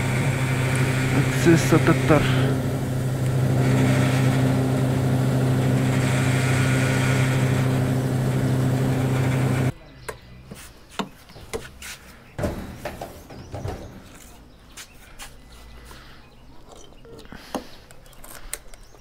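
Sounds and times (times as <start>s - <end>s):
engine running: 0.0s - 9.8s.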